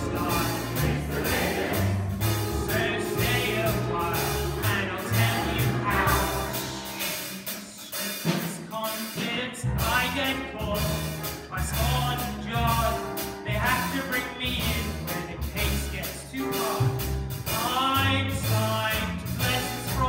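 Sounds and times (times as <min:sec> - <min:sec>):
low bouncing bass notes: 0:00.0 - 0:06.9
mixed choir singing: 0:00.0 - 0:07.7
chamber orchestra: 0:00.0 - 0:07.9.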